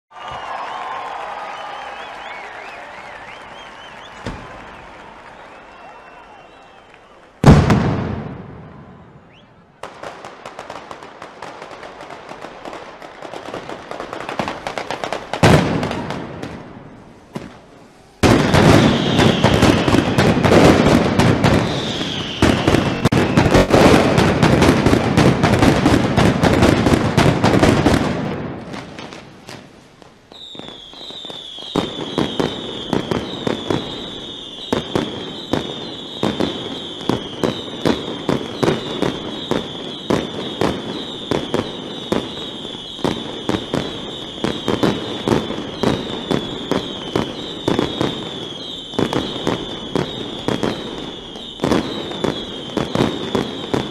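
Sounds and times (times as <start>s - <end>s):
firecrackers banging: 0.2s - 6.6s, 7.3s - 53.9s
shrill whistling with falling tones: 0.2s - 7.3s, 21.6s - 23.9s, 30.3s - 34.8s.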